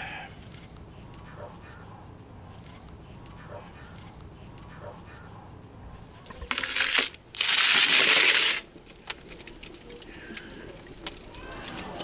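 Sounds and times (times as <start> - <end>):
metal tray scraping stone floor: 6.2 - 8.6
wood fire crackling and popping: 6.2 - 12.0.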